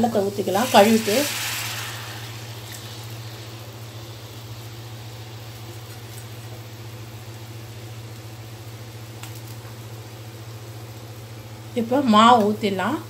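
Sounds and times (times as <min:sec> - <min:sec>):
syrup hissing in a pan: 0:00.0 - 0:11.2
low hum: 0:00.5 - 0:08.6.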